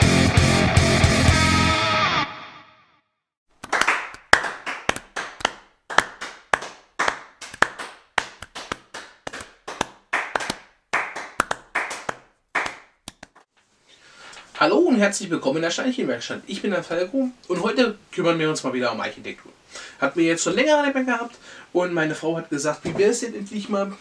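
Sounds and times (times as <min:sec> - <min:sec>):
hands clapping slowly: 0:03.6 - 0:13.4.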